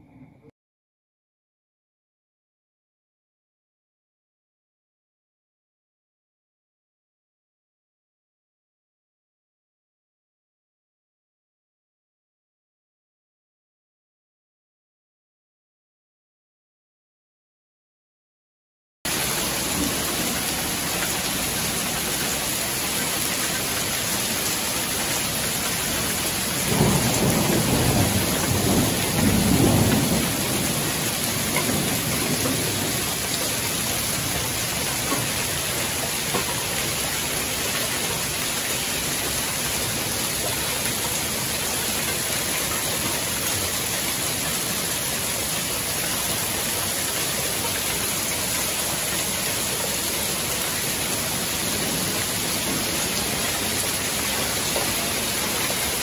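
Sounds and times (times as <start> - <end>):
thunder rumbling: 19.1 - 37.8, 51.3 - 55.8
hail and heavy rain: 19.1 - 56.0.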